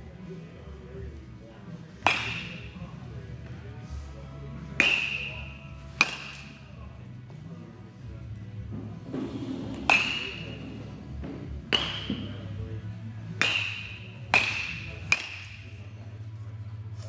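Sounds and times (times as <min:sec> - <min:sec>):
steady low hum: 0:00.0 - 0:17.0
bat cracking baseballs: 0:01.9 - 0:03.6, 0:04.6 - 0:06.7, 0:08.8 - 0:12.5, 0:13.2 - 0:15.8.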